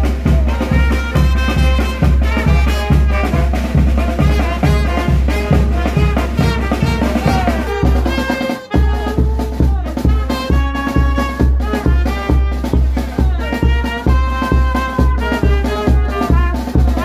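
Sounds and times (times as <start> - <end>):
brass melody: 0.0 - 17.0
steady bass drum beat: 0.0 - 17.0.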